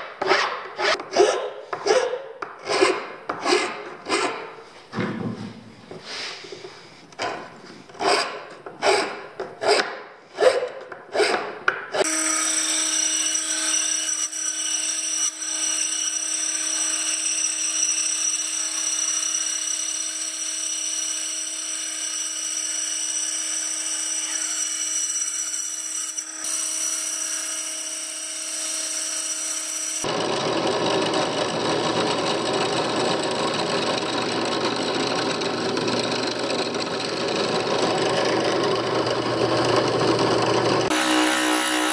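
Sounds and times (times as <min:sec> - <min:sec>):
hand file rasping on wood: 0:00.2 - 0:04.6, 0:08.0 - 0:12.2
drill boring through wood: 0:08.0 - 0:09.8, 0:10.4 - 0:41.9
scroll saw running: 0:08.0 - 0:41.9.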